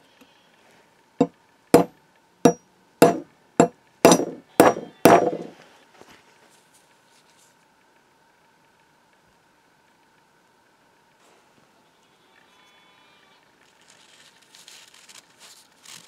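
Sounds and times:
hammer striking steel punch: 2.5 - 5.5.

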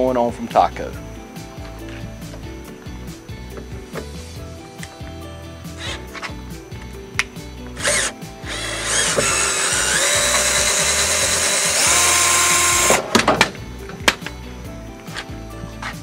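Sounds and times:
cordless drill motor whine: 5.8 - 6.1, 7.8 - 13.1.

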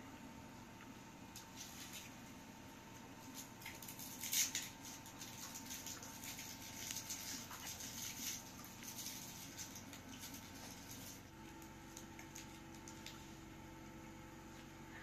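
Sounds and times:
candy wrapper crinkling: 3.3 - 13.2.

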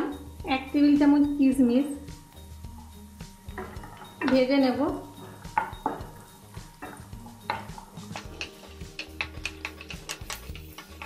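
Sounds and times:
wooden spatula tapping and scraping pan: 5.5 - 11.0.

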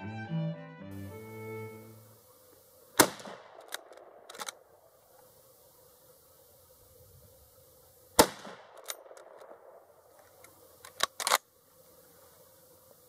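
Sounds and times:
rifle shot with echo: 2.9 - 4.9, 8.2 - 10.1
rifle lever metallic clacks: 3.0 - 4.6, 8.7 - 9.5, 10.8 - 11.4.

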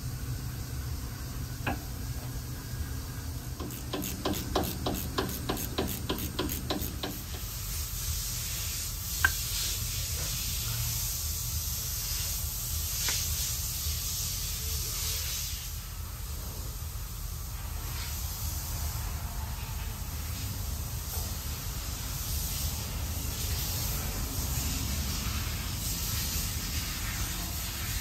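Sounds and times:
steady hiss: 0.0 - 28.0
pump quick clicks: 3.6 - 7.4.

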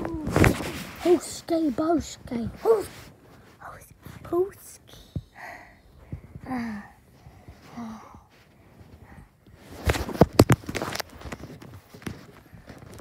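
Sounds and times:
breathy voice sounds: 0.0 - 9.4
phone being handled: 9.8 - 13.0.

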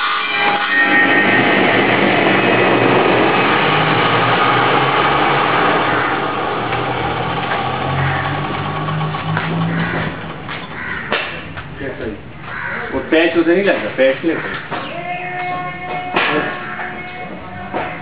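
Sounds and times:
electric power saw cutting: 0.0 - 10.9.

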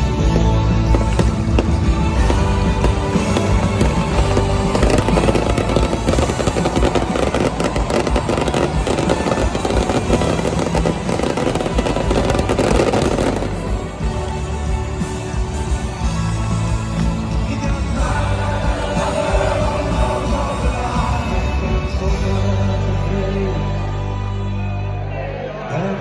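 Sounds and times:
fireworks crackling and popping: 0.0 - 17.0
loud concert music: 0.0 - 26.0.

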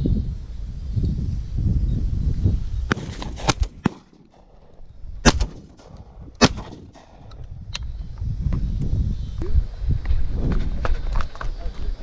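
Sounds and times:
shotgun shot: 2.9 - 4.6, 5.2 - 7.4.

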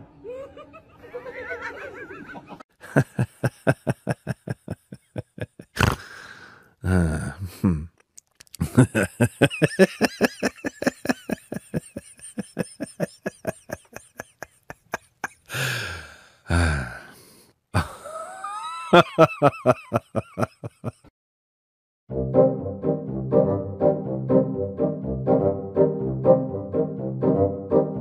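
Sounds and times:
person laughing hard: 0.2 - 6.2, 8.6 - 17.0, 17.8 - 21.1.

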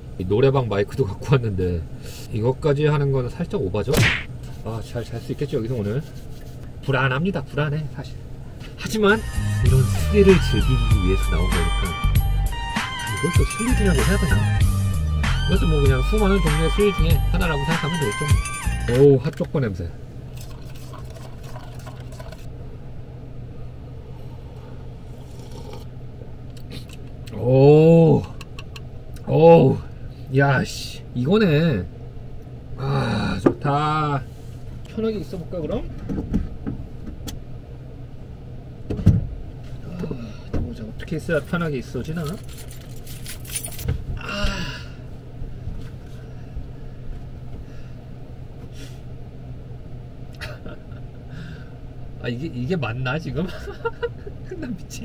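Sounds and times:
ventilation fan humming: 0.0 - 55.0
person grunting: 32.8 - 33.4.

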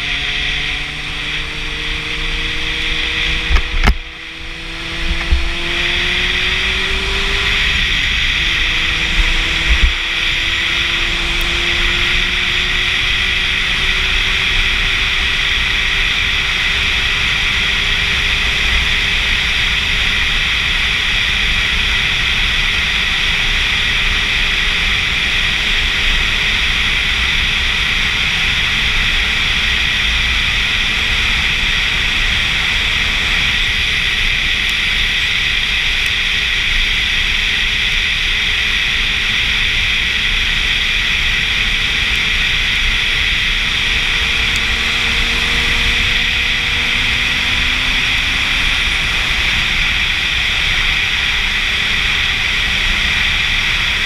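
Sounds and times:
faint motorcycle engine drone: 0.0 - 54.0
wind rushing over camera: 0.7 - 54.0.

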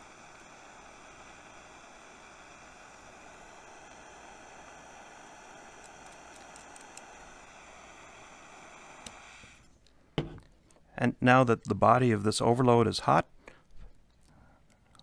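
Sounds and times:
gas torch flame hissing: 0.0 - 9.8.

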